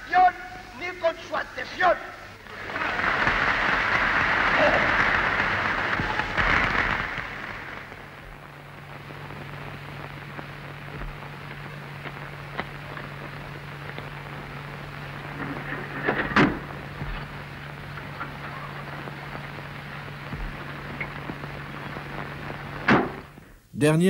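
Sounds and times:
low steady hum: 0.0 - 24.0
crowd applause: 2.4 - 8.3, 17.6 - 19.8.

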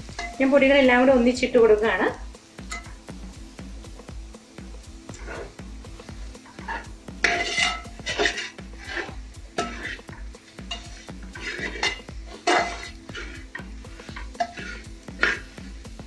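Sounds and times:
background music: 0.0 - 16.0
metal spatula scraping metal pot: 0.1 - 0.4, 5.1 - 5.6, 6.5 - 15.7.

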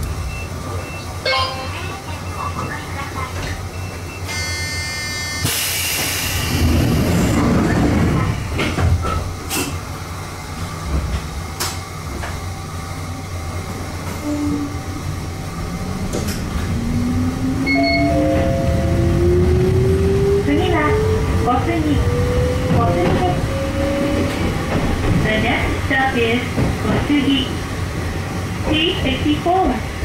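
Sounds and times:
train motor whine rising: 15.3 - 21.2.

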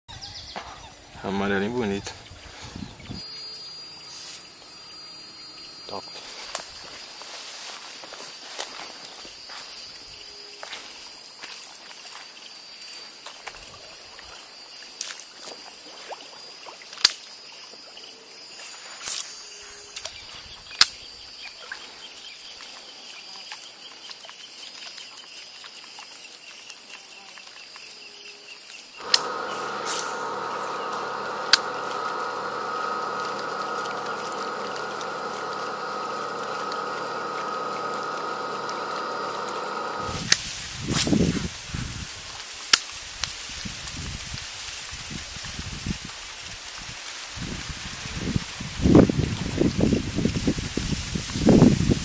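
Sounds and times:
insects chirring: 3.0 - 16.5, 24.5 - 41.2
steady drone of held tones: 29.0 - 40.3
sharp clicks: 29.0 - 40.4.

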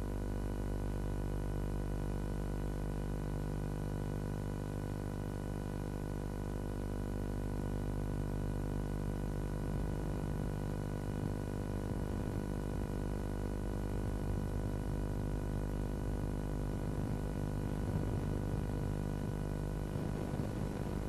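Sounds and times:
droning hum with overtones: 6.9 - 21.0
faint crackle: 17.7 - 21.0.

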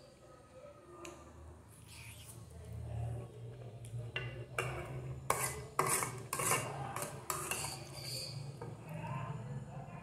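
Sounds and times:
metal spoon scraping a plate: 4.3 - 8.9.

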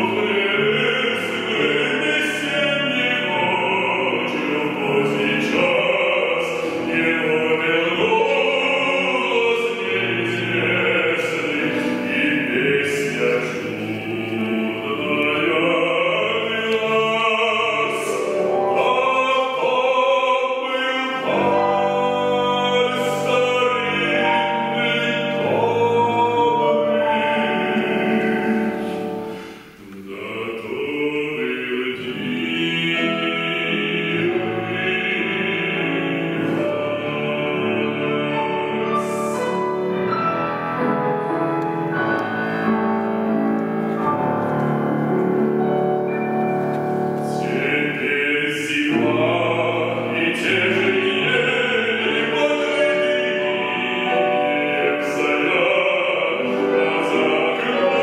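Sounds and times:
operatic bass voice singing: 0.0 - 29.0
grand piano accompaniment: 0.0 - 58.0.

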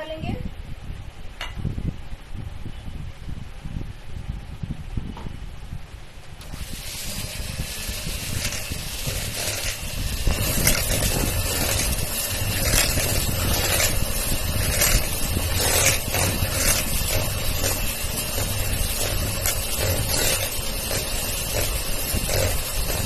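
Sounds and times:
electric hand mixer motor hum: 6.4 - 23.0.

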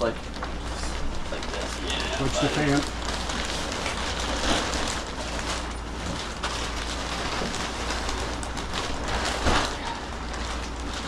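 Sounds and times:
low steady hum: 0.0 - 11.0
plastic bag crinkling: 0.0 - 11.0.

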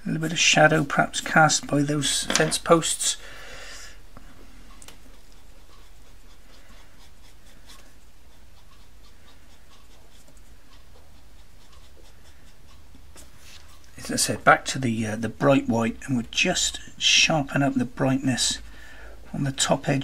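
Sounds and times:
pastel scratching on paper: 5.2 - 13.9.

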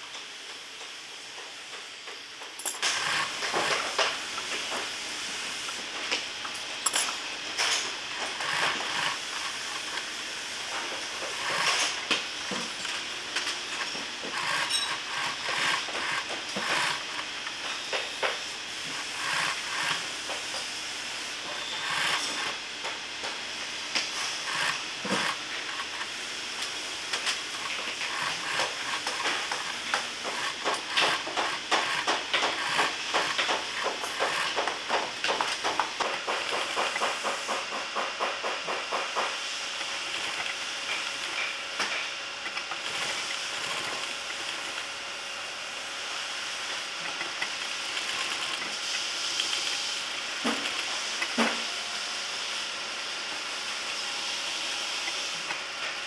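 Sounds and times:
sewing machine needle clicking: 30.3 - 34.5.

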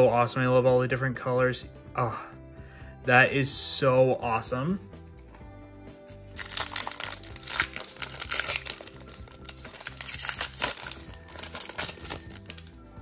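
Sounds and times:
foil wrapper crinkling: 6.4 - 12.7.

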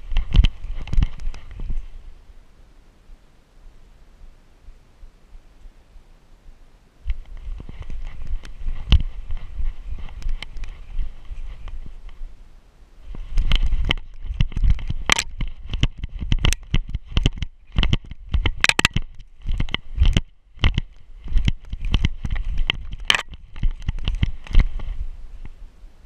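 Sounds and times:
thuds of dog running in snow: 7.1 - 12.3, 13.0 - 25.5.

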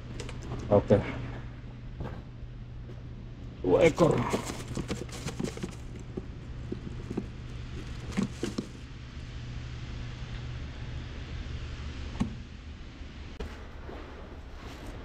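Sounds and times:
steady low hum: 0.0 - 15.0
plastic bag rustling: 3.8 - 8.9.

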